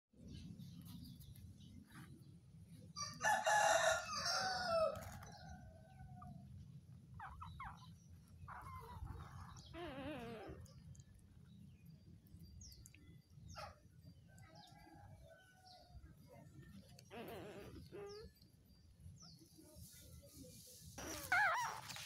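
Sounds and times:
rooster crowing: 3.0s - 6.0s.

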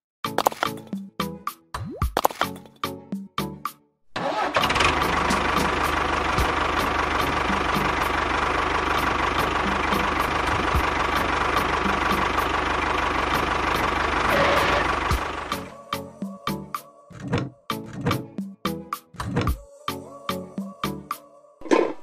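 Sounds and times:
tractor engine droning: 4.2s - 16.2s.

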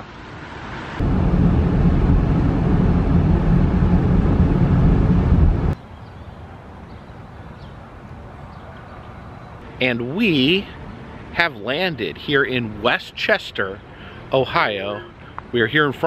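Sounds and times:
car cabin road noise: 0.0s - 5.8s
faint outdoor background: 0.0s - 16.0s.

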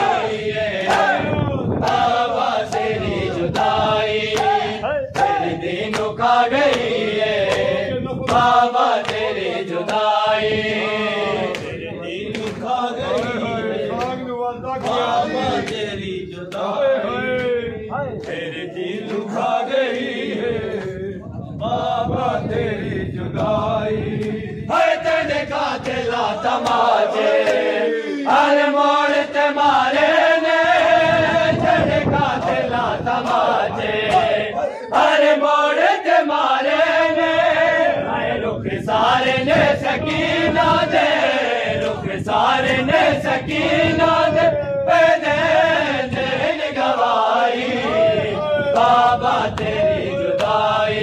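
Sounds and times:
men chanting a lament: 0.0s - 51.0s.

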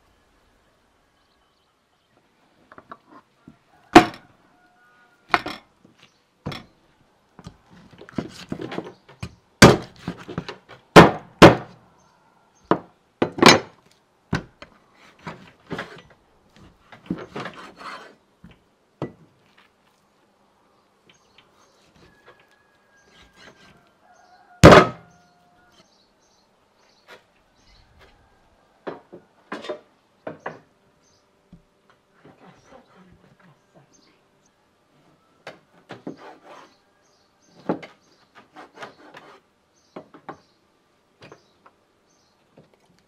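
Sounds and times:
knocks and thuds on wood: 3.9s - 4.2s, 7.4s - 11.8s, 12.7s - 16.0s, 24.6s - 25.1s.

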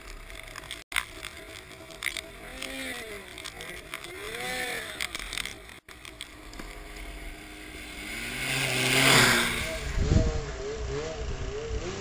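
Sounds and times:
snowmobile engine revving: 1.3s - 12.0s.

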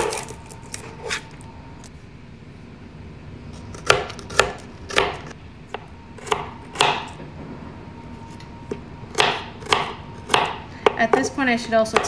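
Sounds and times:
knife chopping on cutting board: 3.7s - 7.2s, 8.7s - 11.3s.

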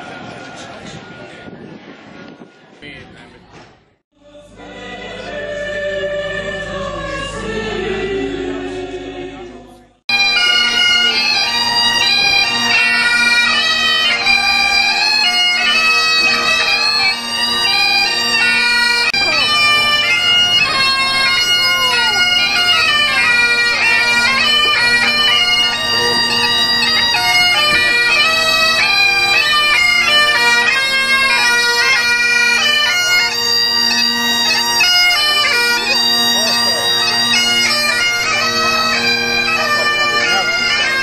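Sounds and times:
people singing: 4.2s - 10.0s
bagpipes playing: 4.5s - 9.5s, 10.1s - 41.0s.

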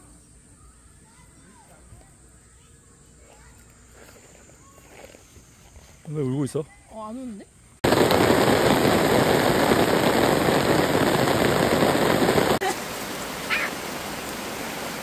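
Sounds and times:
heavy rain pouring: 7.8s - 15.0s.

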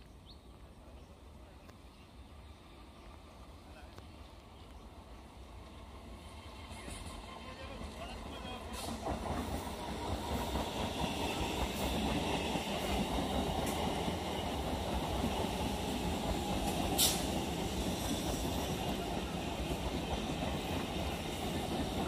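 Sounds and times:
train wheels rumbling on rail: 0.1s - 22.0s.

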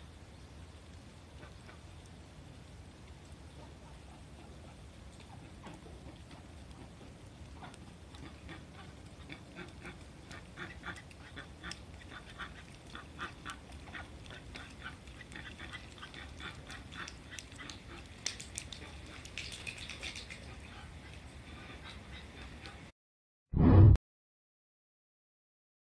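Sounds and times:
ducks quacking: 7.6s - 18.1s.

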